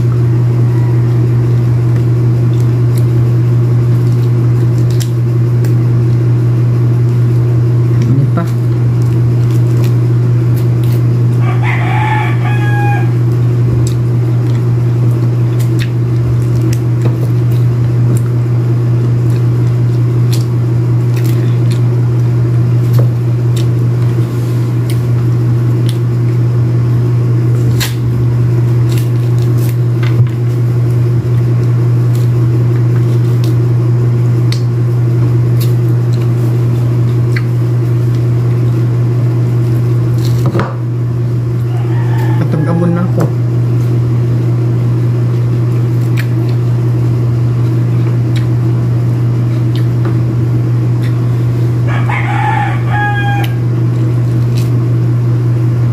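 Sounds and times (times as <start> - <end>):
fruit being peeled: 0.0 - 55.9
loud low hum: 0.0 - 55.9
rooster crowing: 0.2 - 1.8, 11.4 - 13.3, 41.5 - 43.4, 51.8 - 53.8.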